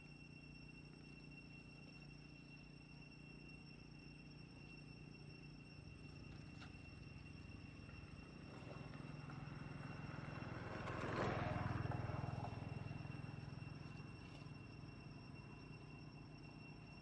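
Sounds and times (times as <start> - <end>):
distant vehicle engine passing: 6.7 - 15.7.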